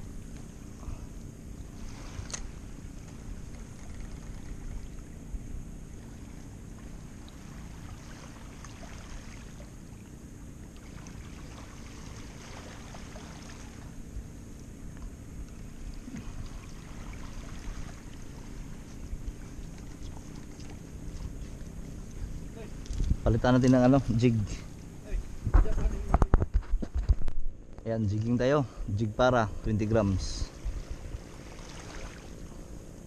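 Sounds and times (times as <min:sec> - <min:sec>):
steady low rumble: 0:00.0 - 0:33.0
waves lapping on stony shore: 0:01.6 - 0:05.3, 0:05.9 - 0:14.1, 0:15.6 - 0:22.8, 0:30.5 - 0:32.8.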